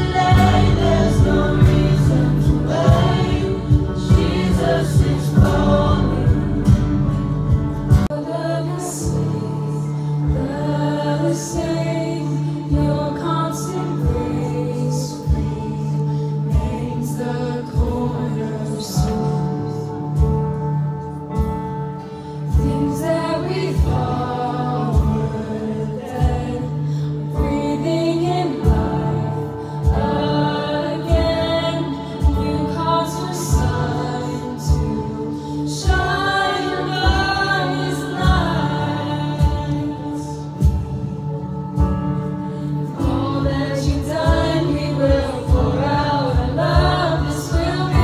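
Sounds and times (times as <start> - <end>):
woman singing: 0.0 - 7.0, 7.9 - 20.6, 22.4 - 48.0
steady low beat: 0.0 - 8.1
acoustic guitar: 0.0 - 48.0
backing voices singing: 0.0 - 48.0
band accompaniment: 0.0 - 48.0.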